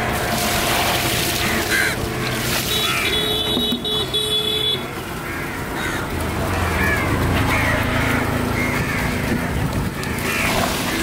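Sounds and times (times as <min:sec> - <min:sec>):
street noise: 0:00.0 - 0:11.0
vehicle horn: 0:02.6 - 0:04.9.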